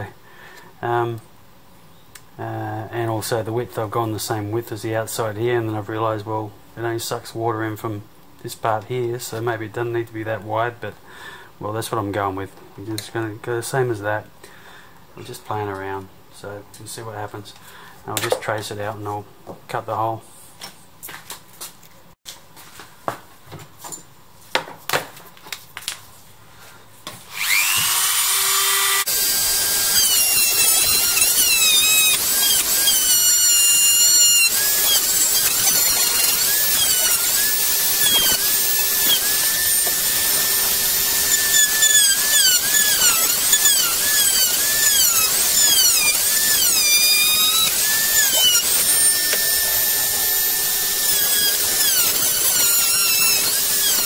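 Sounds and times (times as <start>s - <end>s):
rotary tool whine cutting: 27.3s - 54.0s.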